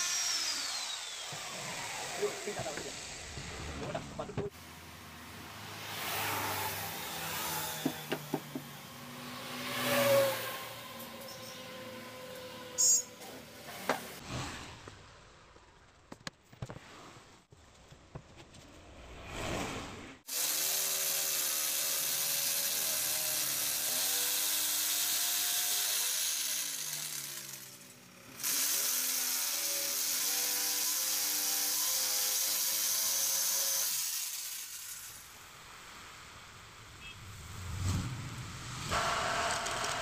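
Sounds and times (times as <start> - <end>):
electric jigsaw cutting wood: 0.0 - 3.6, 5.1 - 12.8, 20.3 - 35.6, 38.8 - 40.0.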